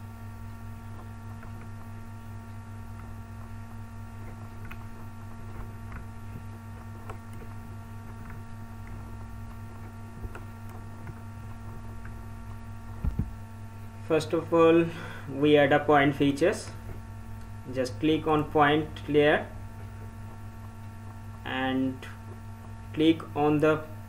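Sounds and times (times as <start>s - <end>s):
steady electrical hum: 0.0s - 24.0s.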